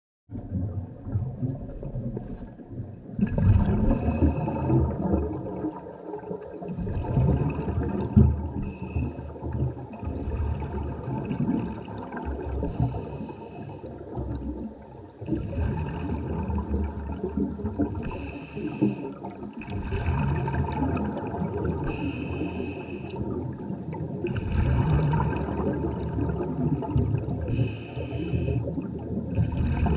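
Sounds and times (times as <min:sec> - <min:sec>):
exhaled bubbles gurgling: 0:00.3 - 0:29.9
regulator inhalation hiss: 0:21.9 - 0:23.1, 0:27.5 - 0:28.6.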